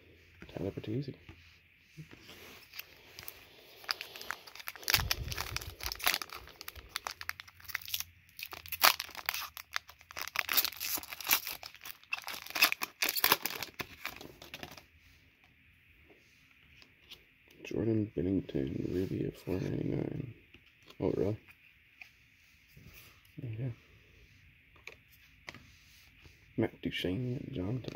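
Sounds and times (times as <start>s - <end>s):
foil wrapper tearing and crinkling: 2.7s - 14.8s.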